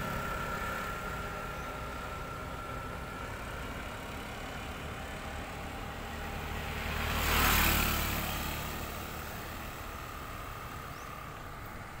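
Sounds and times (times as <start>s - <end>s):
vehicle passing by: 3.5s - 12.0s.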